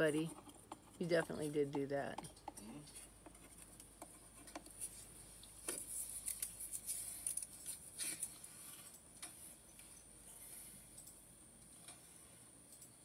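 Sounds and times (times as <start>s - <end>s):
small clicks: 12.7s - 13.0s.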